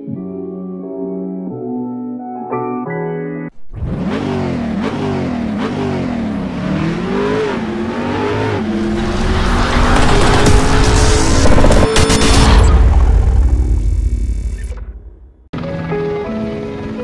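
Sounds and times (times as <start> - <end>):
music: 0.0 - 3.5, 15.5 - 17.0
car engine revving: 3.7 - 15.5.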